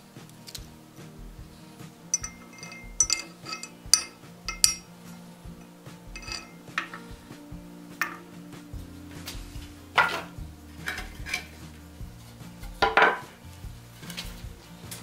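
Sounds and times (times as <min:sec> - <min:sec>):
soft background music: 0:00.0 - 0:15.0
iron fittings clinking: 0:02.1 - 0:04.9, 0:06.2 - 0:07.1, 0:08.0 - 0:08.3.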